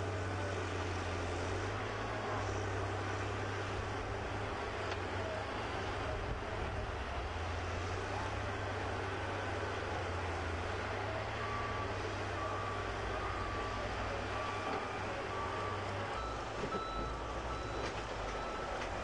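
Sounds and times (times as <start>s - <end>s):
diesel loader engines running: 0.0s - 19.0s
reversing alarm beeping: 11.4s - 18.8s.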